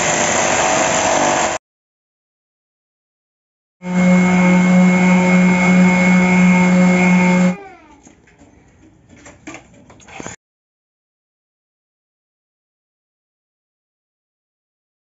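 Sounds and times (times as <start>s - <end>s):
electric sander buzzing: 3.8s - 7.6s
sander winding down whine: 3.8s - 7.6s.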